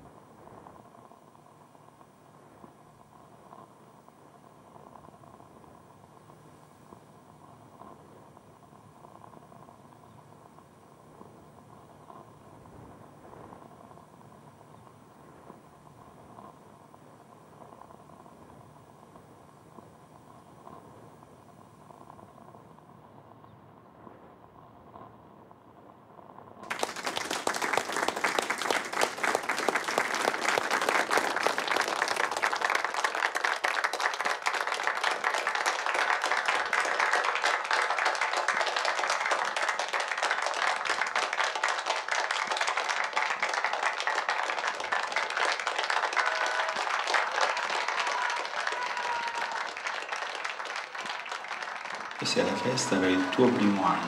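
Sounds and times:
crowd applauding: 0:26.6 - 0:54.0.

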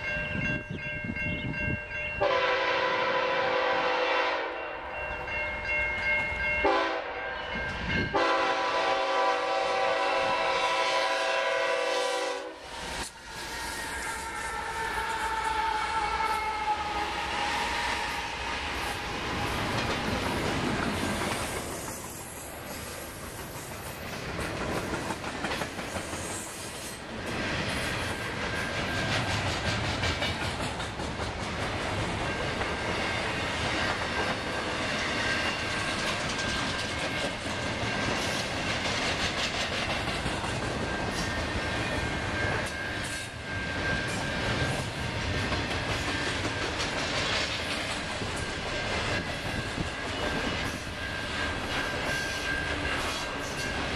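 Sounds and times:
wheels clicking over rail joints: 0:19.2 - 0:26.3.

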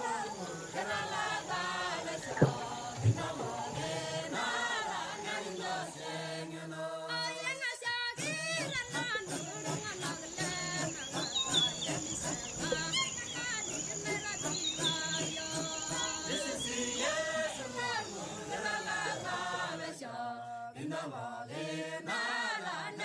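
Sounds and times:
voices chanting together: 0:00.0 - 0:23.0.

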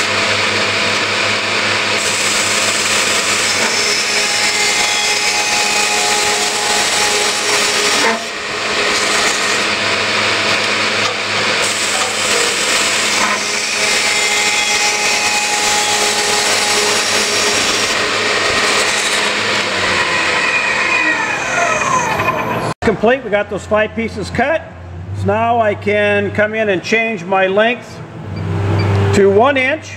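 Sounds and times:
cold saw cutting steel tubing: 0:00.0 - 0:22.8.

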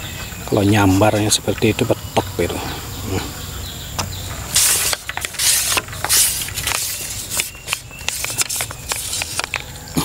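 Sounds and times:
sharp clicks and crackles: 0:04.0 - 0:09.7.

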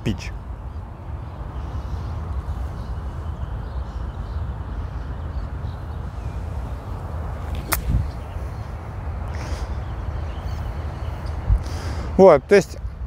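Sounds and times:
steady low rumble: 0:00.0 - 0:12.0
golf club striking ball: 0:07.4 - 0:08.2.

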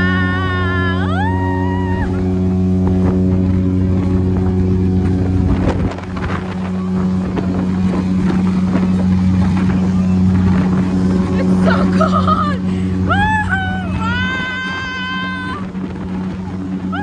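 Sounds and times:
ship engine drone: 0:00.0 - 0:17.0
wind buffeting microphone: 0:00.0 - 0:17.0.

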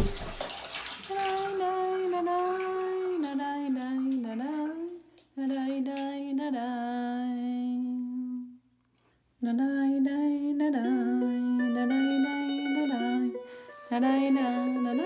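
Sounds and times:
woman humming: 0:10.8 - 0:15.0.

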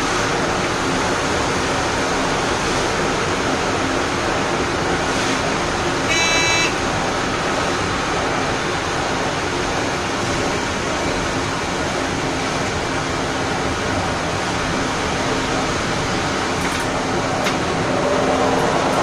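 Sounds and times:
train running on rails: 0:00.0 - 0:19.0
high-pitched train toot: 0:06.1 - 0:06.8.

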